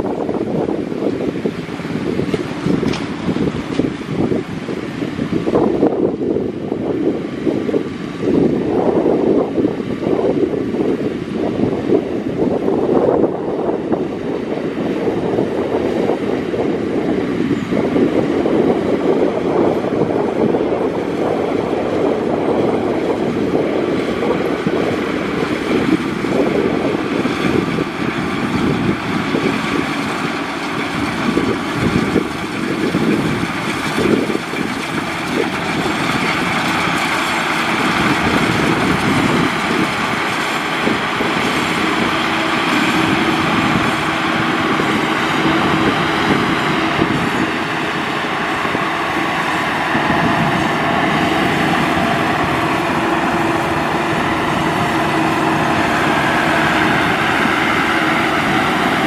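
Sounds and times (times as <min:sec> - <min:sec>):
combine harvester running: 0:00.0 - 0:59.0
wind on microphone: 0:00.0 - 0:59.0.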